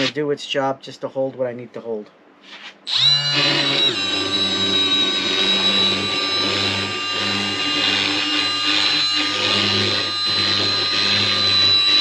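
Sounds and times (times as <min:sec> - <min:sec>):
sander motor whine: 0:02.9 - 0:12.0.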